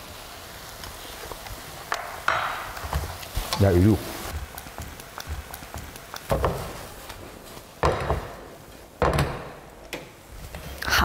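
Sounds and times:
utensil tapping and scraping a wok: 1.4s - 7.2s.

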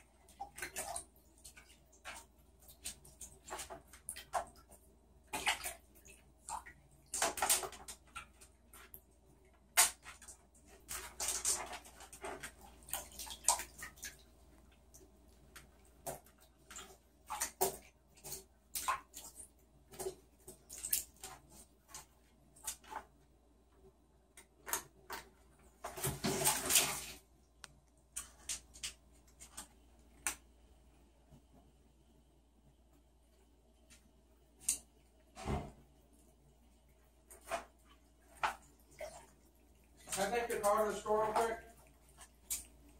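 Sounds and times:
claws scraping in bathtub: 9.7s - 14.2s.

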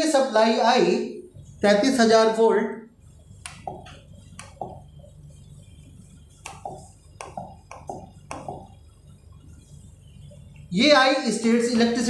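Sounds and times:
steady low hum: 0.0s - 12.0s
pen tapping on screen: 3.4s - 4.9s, 6.4s - 8.8s.

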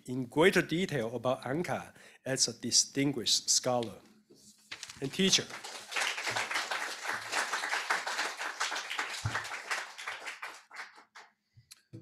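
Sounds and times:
audience applauding: 5.1s - 11.3s.

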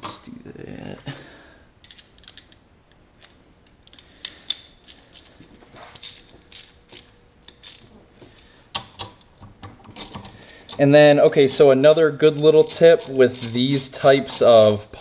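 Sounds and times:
metal tools clinking: 1.0s - 2.6s, 3.2s - 8.5s, 9.9s - 14.9s
ratchet wrench clicking: 10.7s - 14.8s.

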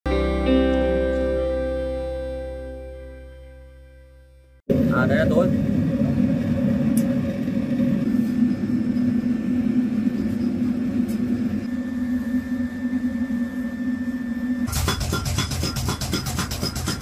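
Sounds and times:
faint high whine: 4.2s - 14.7s
forge fire roaring: 4.7s - 11.7s.

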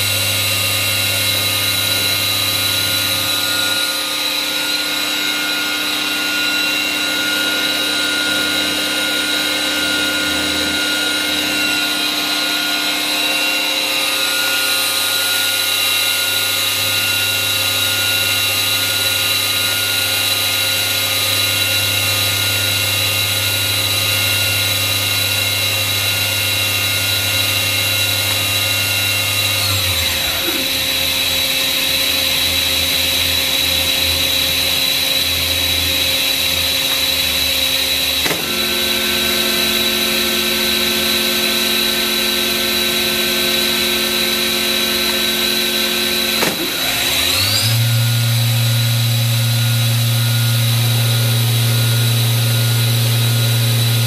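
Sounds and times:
machine spindle whine: 0.0s - 54.0s.

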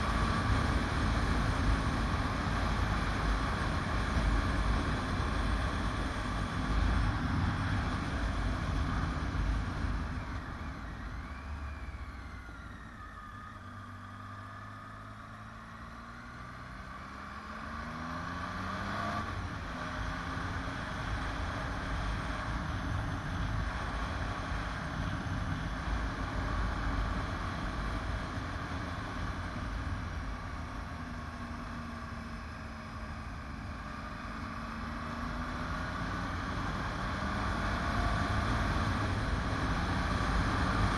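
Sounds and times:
wind and road noise: 0.0s - 40.9s.

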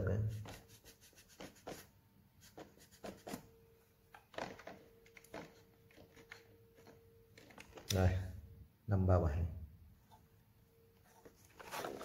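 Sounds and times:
cloth rubbing on plastic: 0.3s - 3.5s, 11.3s - 12.0s.

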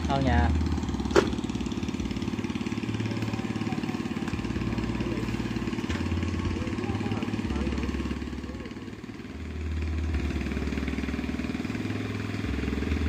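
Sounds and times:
pump engine running: 0.0s - 13.0s.

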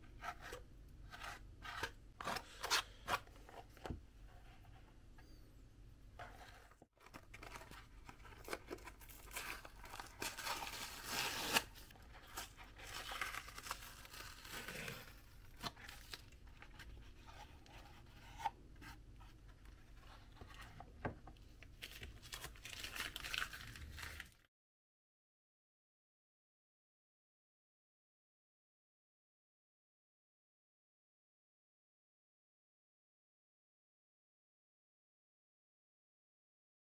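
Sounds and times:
paper rustling and tearing: 7.0s - 16.3s, 21.9s - 24.5s.

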